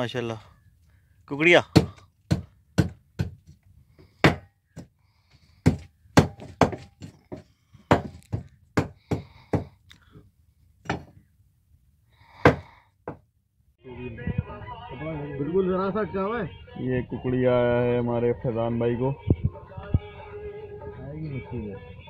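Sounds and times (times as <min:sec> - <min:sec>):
sharp knocks and thumps: 0:05.6 - 0:09.8, 0:10.8 - 0:11.2.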